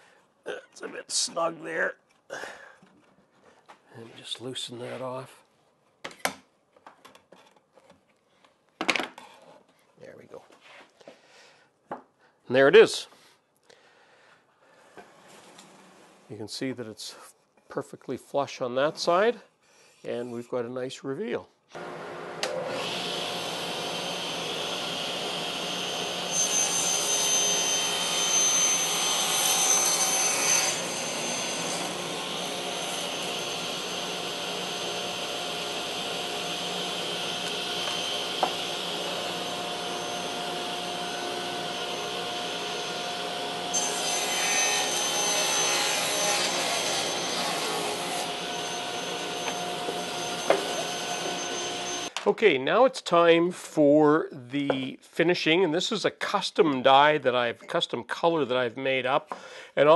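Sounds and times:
saw blade cutting board: 21.8s - 52.1s
table saw running: 21.8s - 52.1s.

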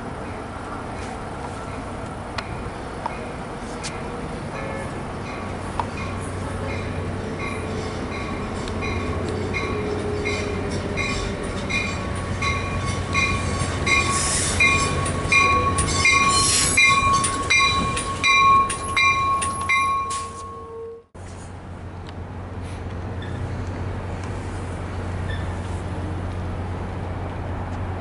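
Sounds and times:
wheel and brake noise: 0.4s - 28.0s
train wheels clicking over rail joints: 5.0s - 20.6s
bell dinging: 11.8s - 21.0s.

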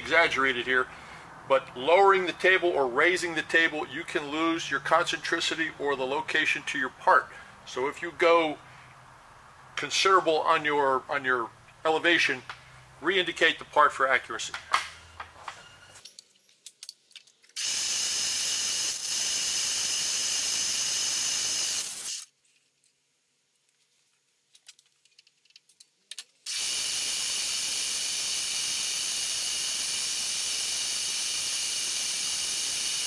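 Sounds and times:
compressed-air blow gun hissing: 17.6s - 22.3s, 26.5s - 33.0s.

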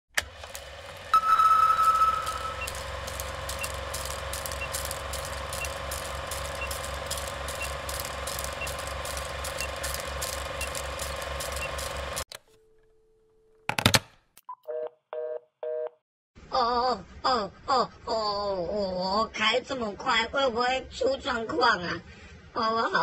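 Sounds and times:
film projector clatter and hum: 0.1s - 12.3s
short high beep: 1.2s - 2.8s
crackling clicks: 2.2s - 12.4s.

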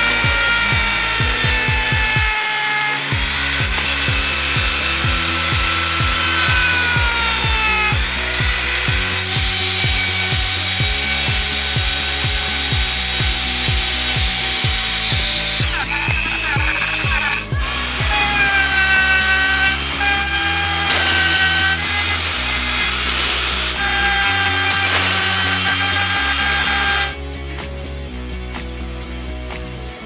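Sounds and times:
rotary tool sanding wood: 0.0s - 27.2s
rock music with steady beat: 9.9s - 30.0s.

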